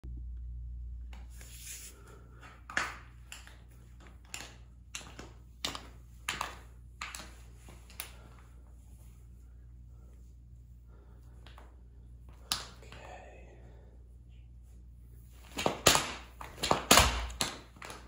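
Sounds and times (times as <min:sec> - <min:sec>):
steady low hum: 0:00.0 - 0:18.0
tap shoes on concrete: 0:02.4 - 0:08.3, 0:15.4 - 0:18.0.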